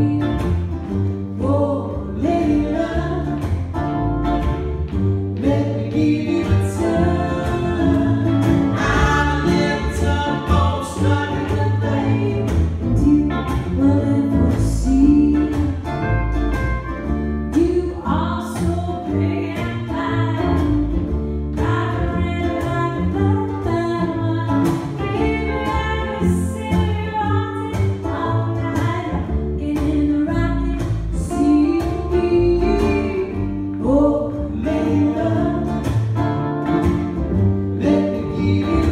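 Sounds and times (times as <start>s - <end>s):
electric guitar: 0.0s - 38.9s
plucked double bass: 0.0s - 38.9s
strummed ukulele: 0.0s - 38.9s
person singing: 5.4s - 15.9s, 37.8s - 38.9s.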